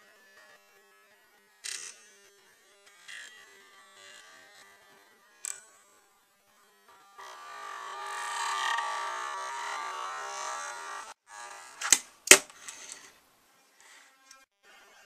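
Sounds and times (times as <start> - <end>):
fingerboard wheels rolling on wood: 6.9 - 13.2.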